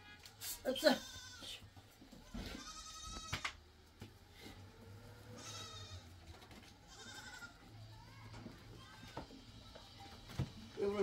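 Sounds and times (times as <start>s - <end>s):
goats bleating: 0.8s - 1.6s, 2.2s - 3.6s, 5.2s - 6.2s, 6.8s - 9.5s.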